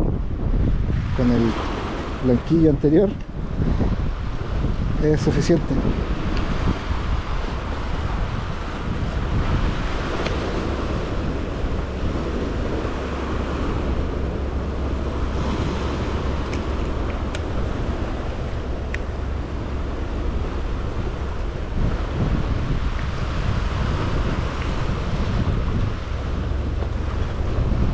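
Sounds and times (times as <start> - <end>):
wind buffeting microphone: 0.0 - 27.9
surf washing against rocks: 0.4 - 27.9.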